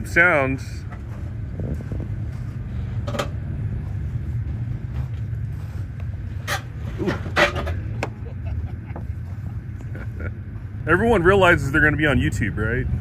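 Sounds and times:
low engine rumble: 0.0s - 13.0s
vehicle clicks and creaks: 0.8s - 3.5s, 4.9s - 8.2s.

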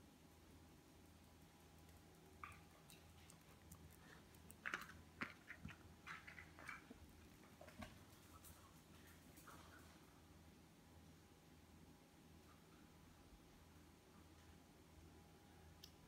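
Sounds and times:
puppy clicking on tile floor: 1.8s - 10.0s.

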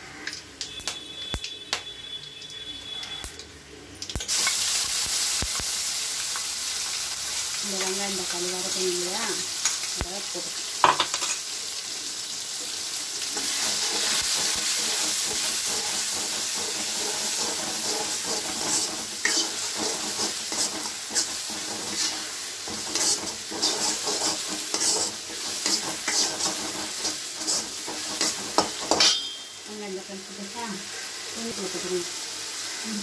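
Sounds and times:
paste sizzling in hot oil: 4.2s - 33.0s
ladle scraping a wok: 13.4s - 29.2s.

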